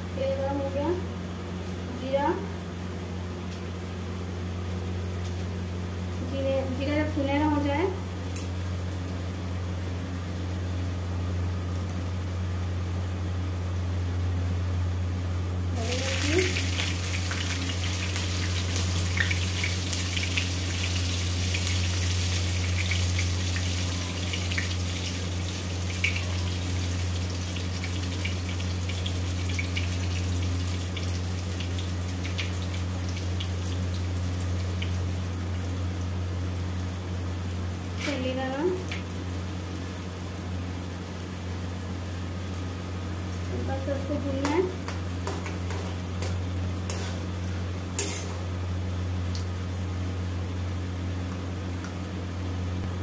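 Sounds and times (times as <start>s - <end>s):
steady low hum: 0.0s - 53.0s
hot oil sizzling and crackling: 15.7s - 50.8s.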